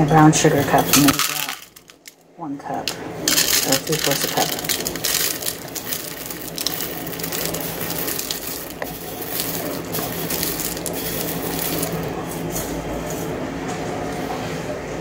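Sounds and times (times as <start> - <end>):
dry ingredients crunching: 2.9 - 12.9.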